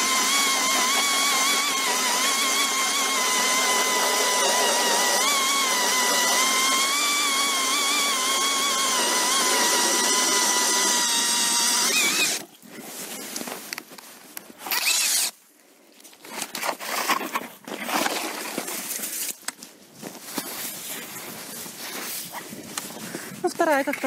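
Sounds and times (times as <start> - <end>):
cordless drill whining: 0.0 - 12.4, 14.6 - 15.4
auger scraping and crunching ice: 0.0 - 15.4, 16.0 - 24.0.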